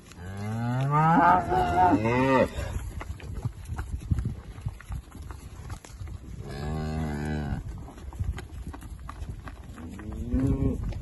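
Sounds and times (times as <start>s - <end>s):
cow mooing: 0.3s - 2.6s.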